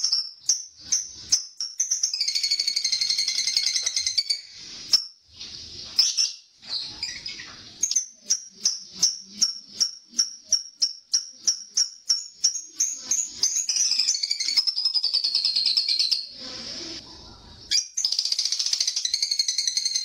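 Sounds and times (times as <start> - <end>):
lovebird chirping sharply: 5.8 - 16.4.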